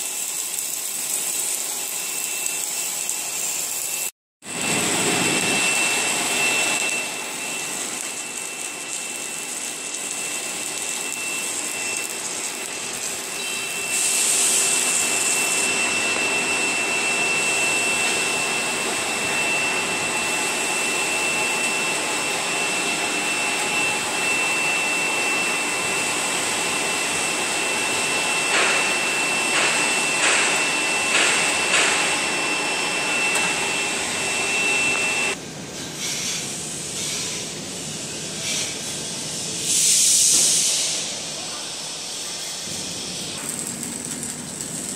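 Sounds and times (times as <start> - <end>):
welding machine hiss: 0.0 - 44.9
high whine: 4.4 - 39.6.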